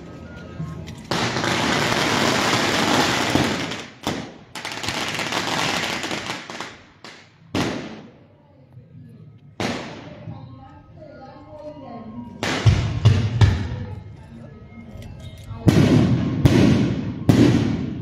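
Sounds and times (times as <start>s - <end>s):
firecrackers crackling: 0.8s - 8.2s, 12.4s - 13.6s, 15.7s - 18.0s
firecracker bang: 15.7s - 18.0s.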